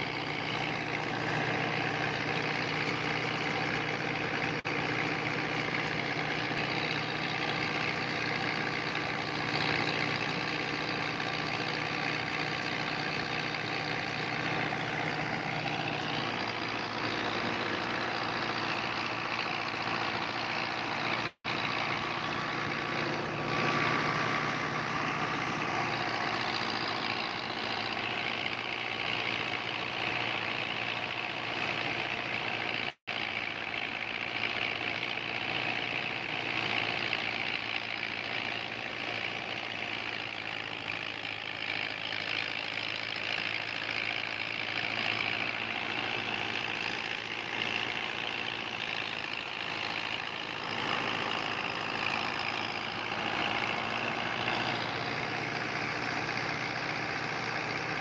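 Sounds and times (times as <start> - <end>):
thresher whirring rush: 0.0 - 32.7
tractor engine under load: 0.0 - 58.0.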